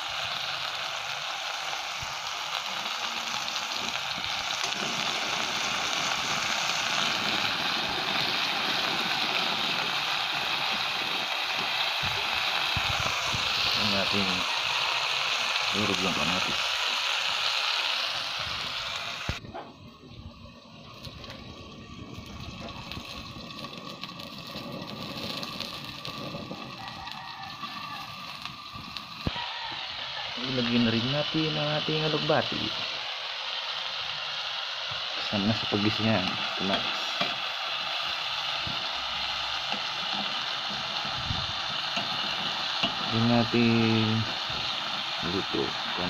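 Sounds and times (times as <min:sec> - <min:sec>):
burning sticks crackling: 0:00.0 - 0:46.0
food sizzling in frying pan: 0:00.0 - 0:46.0.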